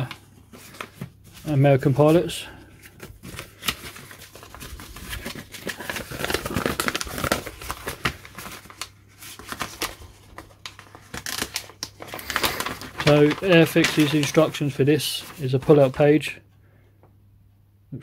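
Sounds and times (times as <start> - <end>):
paper rustling and crinkling: 0.0 - 16.3.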